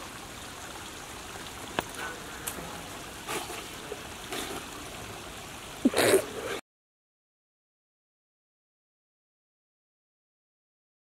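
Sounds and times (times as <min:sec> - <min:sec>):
running water: 0:00.0 - 0:06.6.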